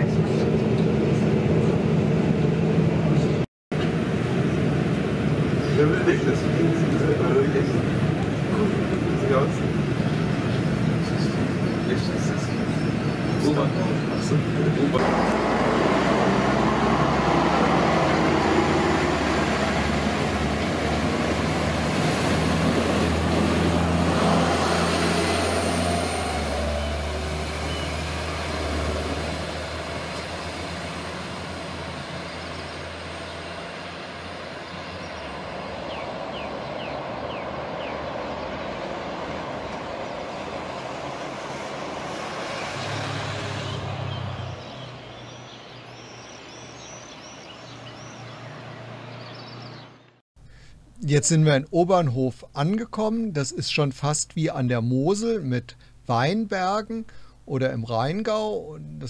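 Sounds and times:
train engine hum and rolling: 0.0s - 42.9s.

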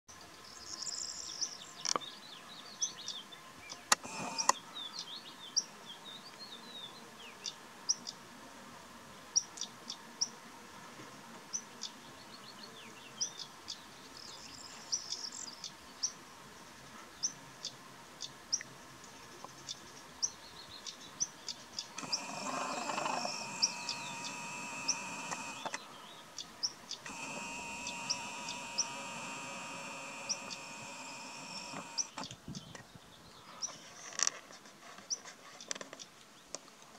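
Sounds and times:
small birds chirping: 0.1s - 8.2s, 9.4s - 10.4s, 11.5s - 16.2s, 17.1s - 34.0s
sharp clicks: 3.7s - 4.6s, 21.8s - 25.8s, 26.9s - 32.4s
camera zoom motor whirring: 3.9s - 4.6s, 22.0s - 25.8s, 26.9s - 32.3s.

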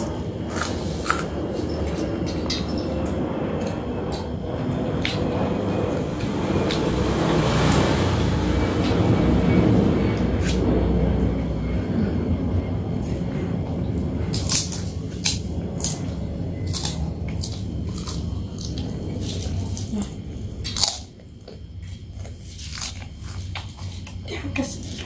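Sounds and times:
person eating close to microphone: 0.0s - 2.6s, 14.2s - 24.2s
low background rumble: 0.0s - 25.0s
crisp crackers crunching: 14.3s - 24.2s.

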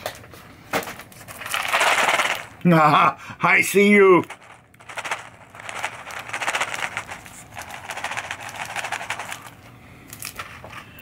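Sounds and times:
plastic pieces rattling in box: 1.2s - 2.7s, 3.8s - 9.6s.

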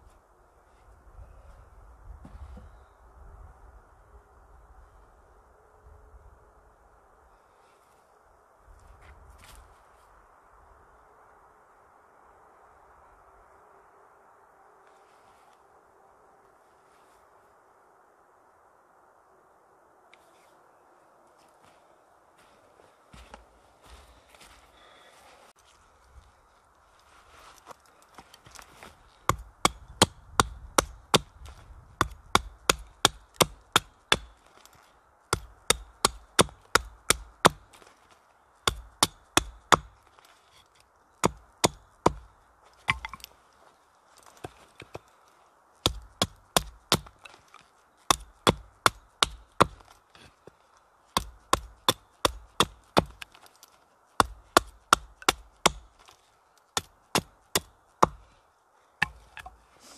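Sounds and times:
hatchet chopping wood: 29.2s - 34.7s, 35.3s - 37.9s, 38.6s - 40.1s, 41.2s - 43.3s, 45.8s - 47.4s, 48.1s - 50.0s, 51.2s - 53.6s, 54.2s - 56.2s, 56.8s - 58.2s, 59.0s - 59.6s.

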